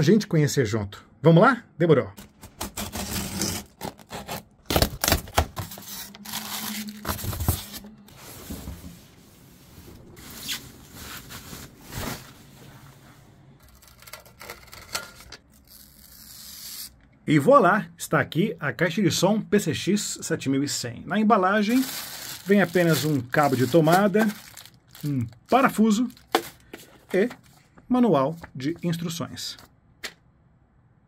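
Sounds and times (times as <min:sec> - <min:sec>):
plastic wrap rustling: 0:02.2 - 0:16.2, 0:21.6 - 0:27.7.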